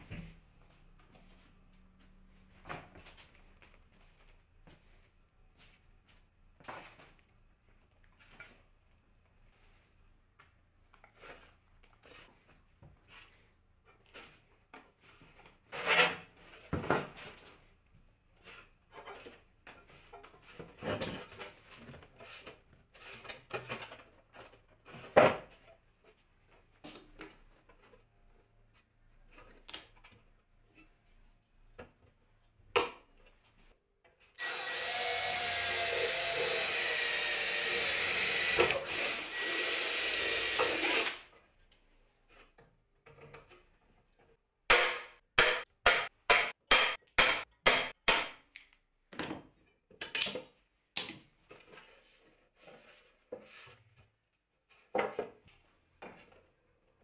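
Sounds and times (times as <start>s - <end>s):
cordless drill: 34.4s - 41.3s.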